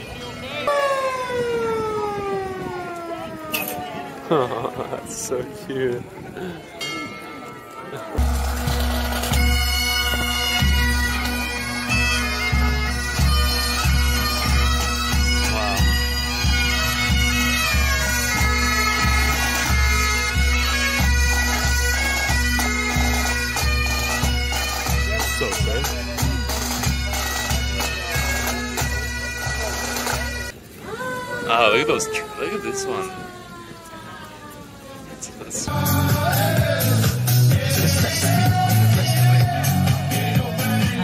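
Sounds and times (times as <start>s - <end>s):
bagpipes playing: 0.0s - 6.6s, 8.2s - 30.6s, 31.5s - 33.8s
bass drum beating: 8.2s - 20.6s.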